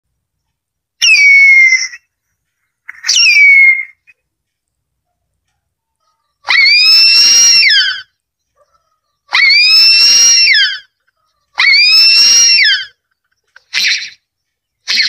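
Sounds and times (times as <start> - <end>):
eagle wailing calls: 9.3 - 10.9, 11.6 - 13.0.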